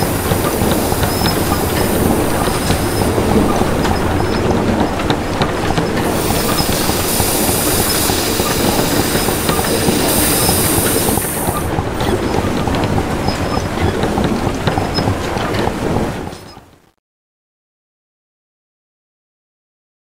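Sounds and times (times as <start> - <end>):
high hiss: 0.0 - 4.4, 6.0 - 11.7
high metallic squeals: 0.0 - 4.4
clanking grinding machinery: 0.0 - 16.6.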